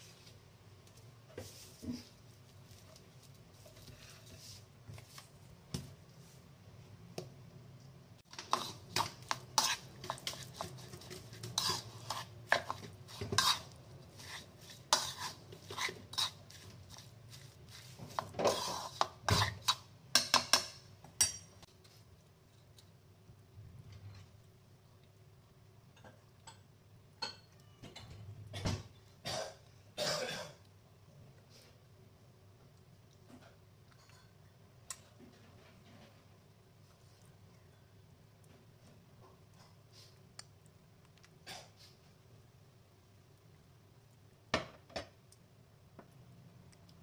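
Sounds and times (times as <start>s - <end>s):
hand mixing filling in bowl: 8.3s - 19.9s.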